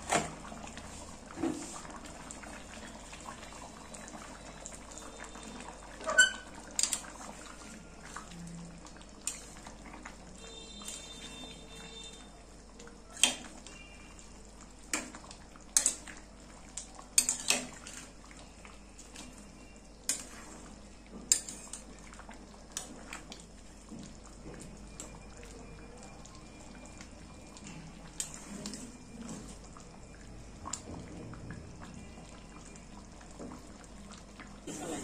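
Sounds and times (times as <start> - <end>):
spatula clinking against pan: 17.2 - 17.7.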